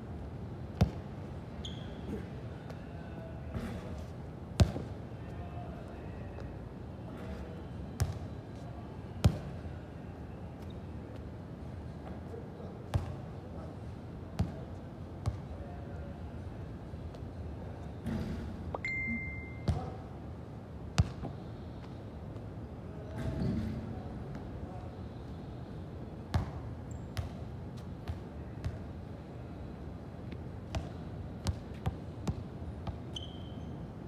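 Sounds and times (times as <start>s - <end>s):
short high beep: 18.8s - 19.7s.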